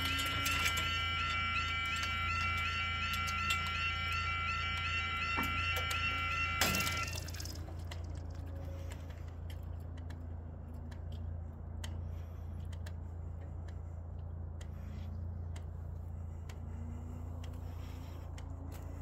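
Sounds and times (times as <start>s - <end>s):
warbling level crossing alarm: 0.0s - 9.3s
steady low hum: 0.0s - 19.0s.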